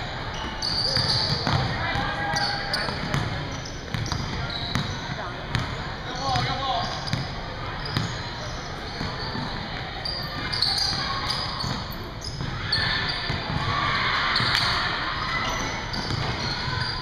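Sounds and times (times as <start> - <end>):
sneakers squeaking: 0.0 - 17.0.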